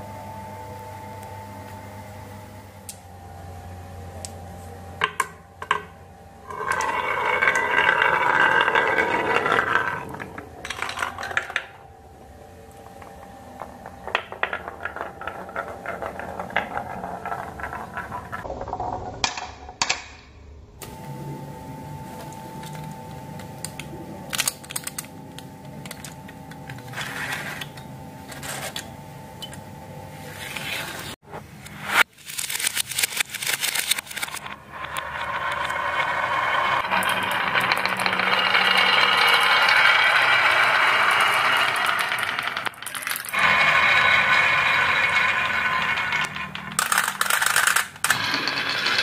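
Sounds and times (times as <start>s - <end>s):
marbles rolling on wooden tracks: 6.4s - 11.8s, 12.8s - 19.3s, 34.2s - 49.0s.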